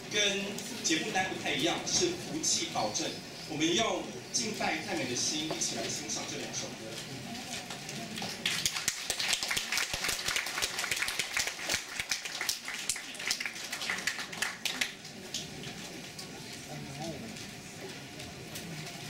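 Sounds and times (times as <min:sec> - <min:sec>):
audience applauding: 0:07.7 - 0:15.4.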